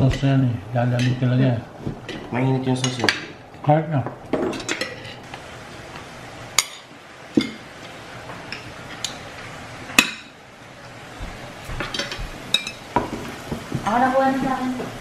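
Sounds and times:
cutlery clinking on plates: 1.0 - 1.3, 4.3 - 5.2, 11.7 - 13.3.

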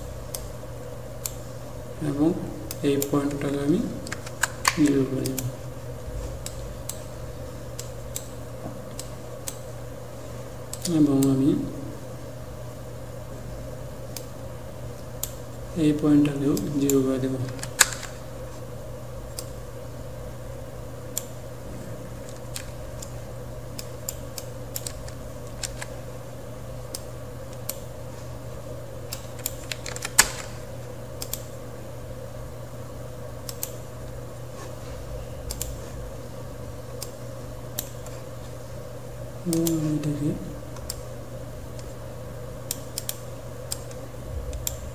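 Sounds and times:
steady low hum: 0.0 - 44.9.

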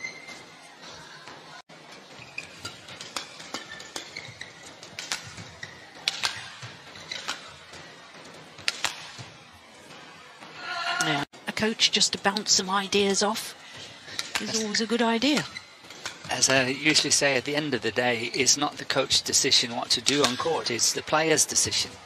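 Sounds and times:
shoes squeaking on court: 0.0 - 10.6, 14.2 - 17.3, 18.1 - 19.2
racket hitting shuttlecock: 2.2 - 10.0, 15.8 - 16.3.

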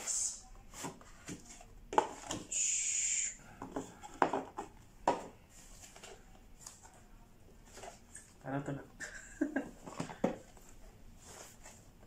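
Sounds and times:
cardboard knocks and taps: 3.6 - 5.3.

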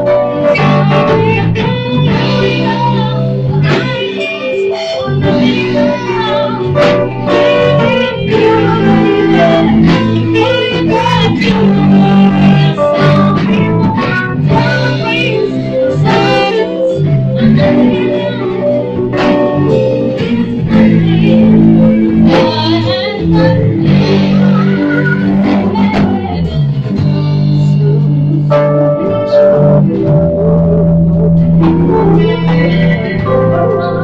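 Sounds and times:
saxophone melody: 0.0 - 26.7
electric bass: 0.0 - 34.0
electric keyboard: 0.0 - 34.0.

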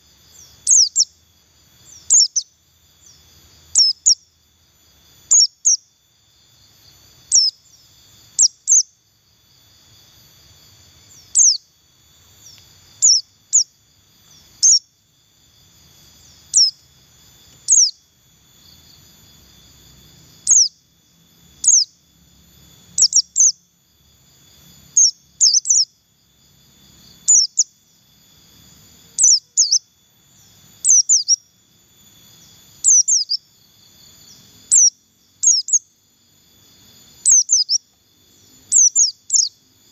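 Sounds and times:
faint insect hum: 0.0 - 39.9
bird chirping high sharp calls: 0.4 - 1.1, 1.9 - 4.2, 5.3 - 5.8, 7.3 - 7.7, 8.4 - 8.9, 11.1 - 11.6, 12.4 - 13.7, 14.3 - 14.9, 16.5 - 16.8, 17.7 - 18.0, 20.5 - 20.8, 21.6 - 21.9, 25.0 - 25.9, 29.2 - 29.8, 30.8 - 31.4, 32.8 - 33.4, 34.7 - 35.8, 37.2 - 37.8, 38.7 - 39.6.

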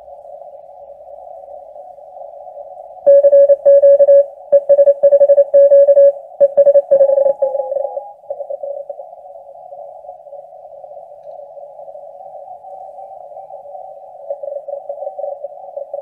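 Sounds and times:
morse code tone: 3.1 - 8.7
radio band hiss: 6.4 - 16.0.

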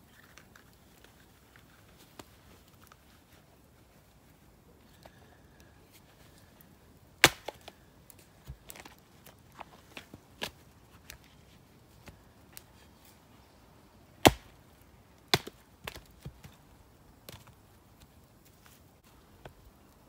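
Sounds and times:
axe chopping log: 7.2 - 7.7, 14.2 - 14.6, 15.3 - 16.1.

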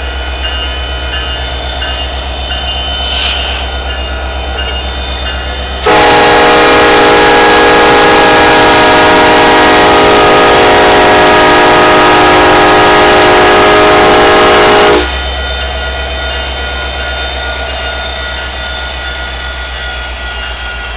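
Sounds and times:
locomotive air horn blast: 5.8 - 15.2.

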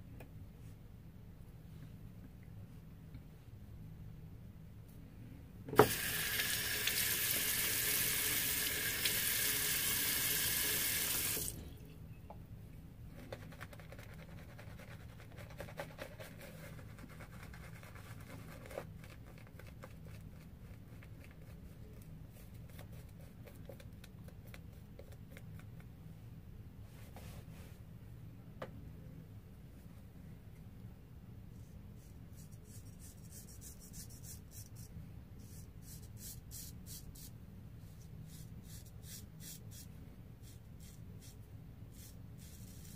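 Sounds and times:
water tap click: 5.8 - 7.4
tap water running into sink: 5.8 - 11.6
shaving brush scratching: 38.3 - 42.9.

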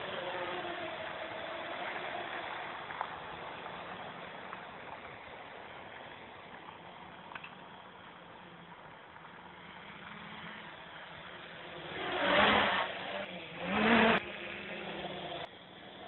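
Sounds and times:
quadcopter motors buzzing: 0.0 - 4.8, 9.4 - 16.0.

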